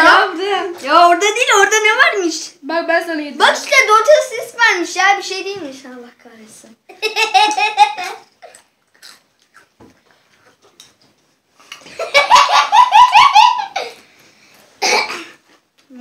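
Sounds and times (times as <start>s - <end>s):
boys laughing: 6.9s - 8.6s, 11.8s - 14.0s.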